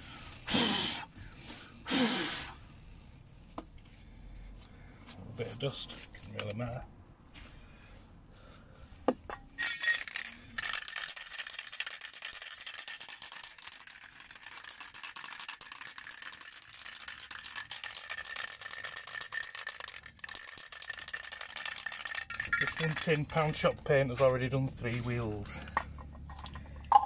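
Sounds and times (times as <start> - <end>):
spray can ball rattling: 9.6 - 23.8.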